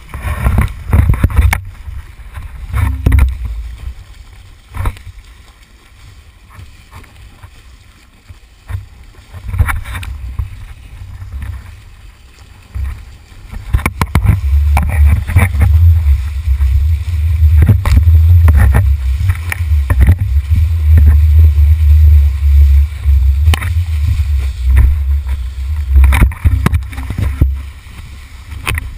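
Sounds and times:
wind buffeting microphone: 0:00.0 - 0:05.3, 0:12.6 - 0:28.9.

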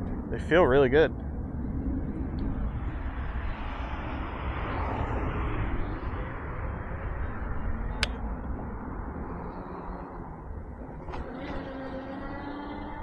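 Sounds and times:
wind buffeting microphone: 0:00.0 - 0:13.0
sharp click: 0:07.9 - 0:08.3.

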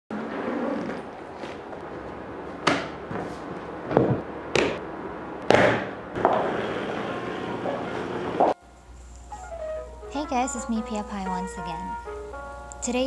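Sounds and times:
luggage knocks and clicks: 0:02.6 - 0:04.8.

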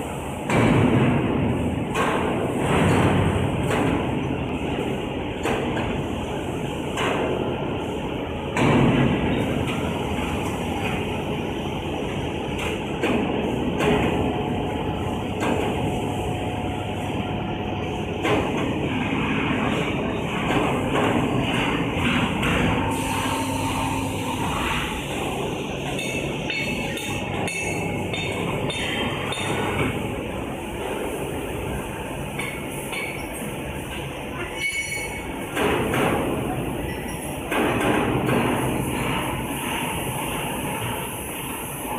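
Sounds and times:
hydraulic machinery noise: 0:00.0 - 0:41.9
sharp metallic knocks: 0:25.8 - 0:30.0.

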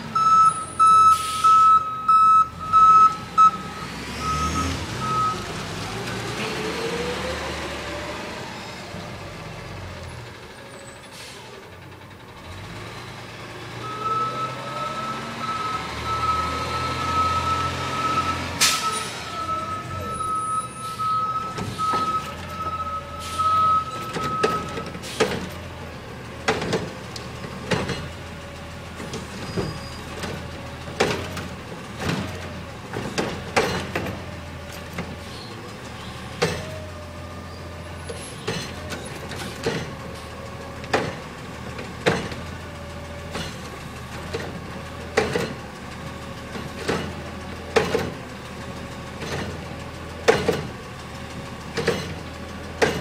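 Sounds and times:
garbage truck engine whine: 0:00.0 - 0:53.0
trash cart bangs and clunks: 0:26.4 - 0:28.3, 0:28.9 - 0:35.2, 0:38.0 - 0:40.1, 0:40.8 - 0:45.7, 0:46.5 - 0:48.2, 0:49.1 - 0:50.8, 0:51.6 - 0:53.0.

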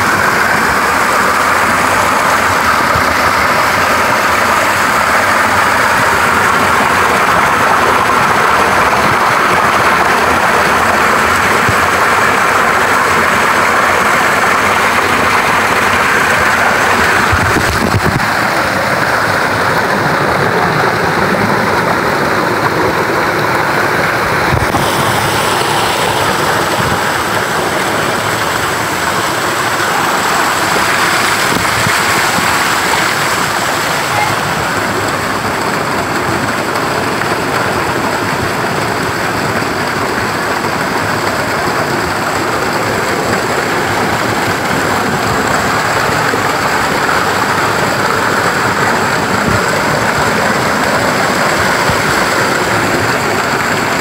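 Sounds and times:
waterfall splashing: 0:00.0 - 0:54.0.

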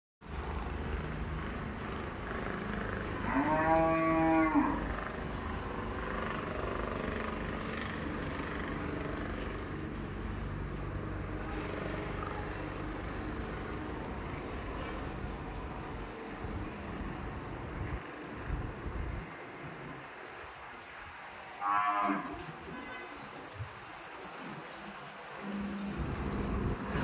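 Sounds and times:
cow mooing: 0:03.1 - 0:05.0, 0:21.6 - 0:22.4.

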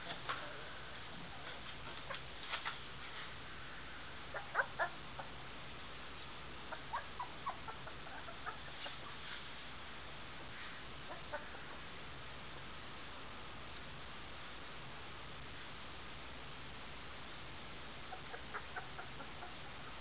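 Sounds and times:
puppies squeaking and whimpering: 0:06.7 - 0:09.0.

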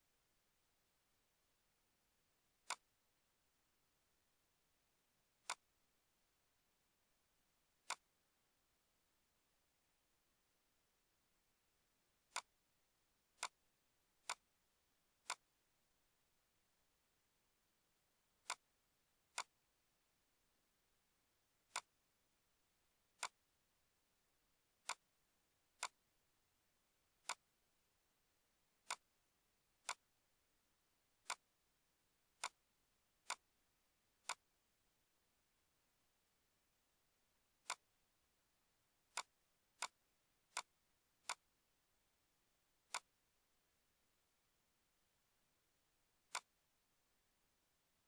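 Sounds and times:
computer mouse clicks: 0:02.6 - 0:02.9, 0:05.4 - 0:05.7, 0:12.3 - 0:12.5, 0:14.2 - 0:14.4, 0:15.2 - 0:15.4, 0:18.4 - 0:18.7, 0:21.7 - 0:22.0, 0:23.2 - 0:23.4, 0:24.8 - 0:25.1, 0:25.8 - 0:26.0, 0:27.2 - 0:27.4, 0:29.8 - 0:30.0, 0:31.2 - 0:31.4, 0:32.4 - 0:32.6, 0:34.2 - 0:34.4, 0:37.6 - 0:37.9, 0:39.1 - 0:41.5, 0:42.8 - 0:43.1, 0:46.3 - 0:46.6.

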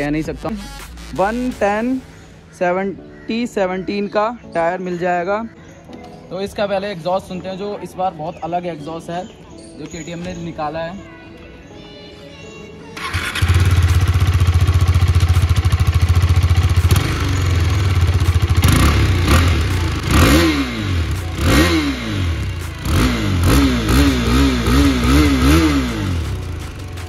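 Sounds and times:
motorcycle engine revving: 0:13.0 - 0:26.9
motorcycle engine starting: 0:13.0 - 0:26.9
motorcycle engine idling: 0:13.0 - 0:27.0.

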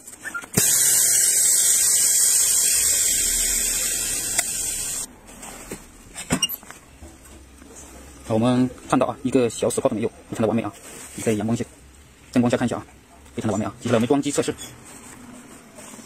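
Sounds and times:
compressed air hissing: 0:00.6 - 0:05.1.

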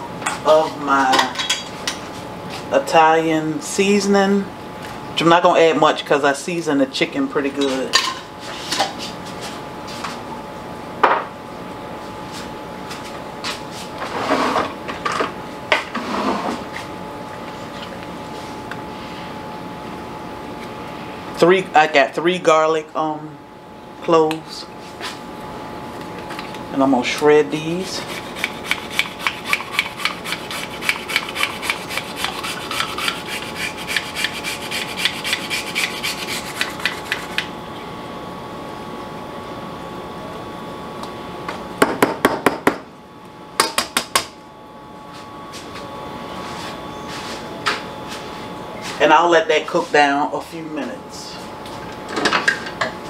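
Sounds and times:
steady hum: 0:00.0 - 0:53.0
garlic being grated: 0:27.8 - 0:37.4.

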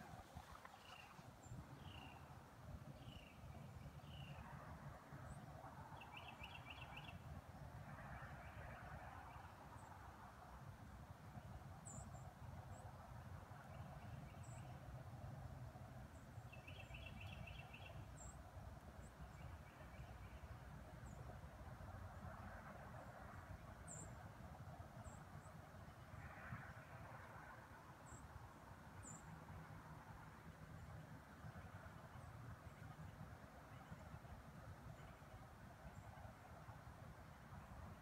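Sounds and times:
faint bird chirps and trills: 0:00.0 - 0:07.4, 0:11.4 - 0:15.0, 0:16.1 - 0:21.4, 0:23.0 - 0:24.3, 0:24.9 - 0:28.3, 0:29.0 - 0:29.5.

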